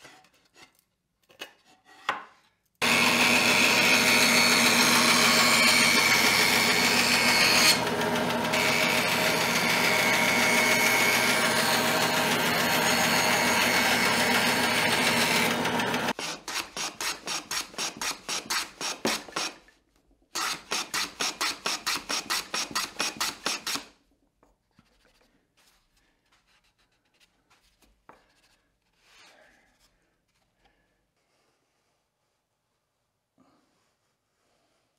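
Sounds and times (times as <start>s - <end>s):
hand plane rasping strokes: 2.8s - 19.6s
bandsaw cutting board: 2.8s - 19.7s, 20.4s - 23.9s.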